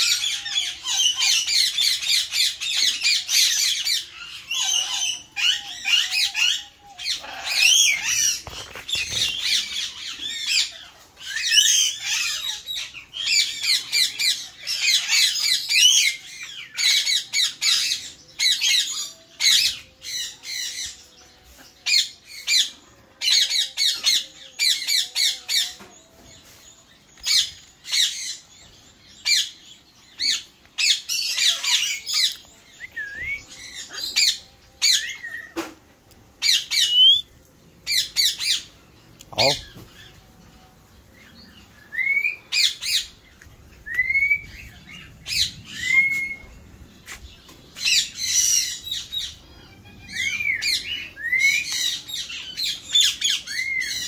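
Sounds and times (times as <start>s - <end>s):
parrots squawking: 0.0s - 16.2s.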